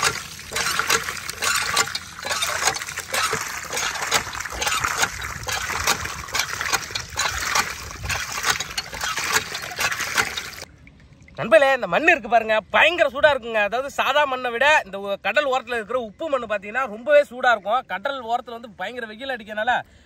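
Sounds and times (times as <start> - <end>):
water splashing and sloshing: 0.0 - 12.0.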